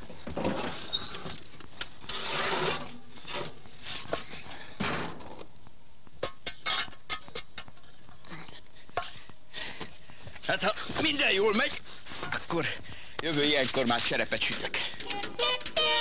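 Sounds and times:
rustling and scraping: 0.0 - 5.4, 6.6 - 16.0
pots and dishes clinking: 6.2 - 7.7.

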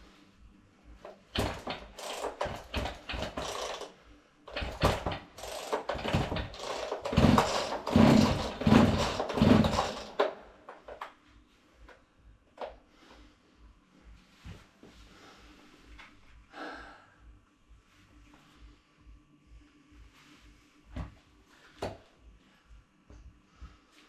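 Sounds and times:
chainsaw clattering and scraping: 1.4 - 11.0.

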